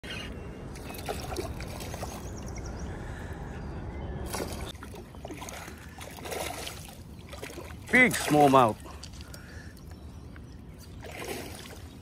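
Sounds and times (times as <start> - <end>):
fish splashing in water: 0.8 - 2.3, 4.3 - 8.7.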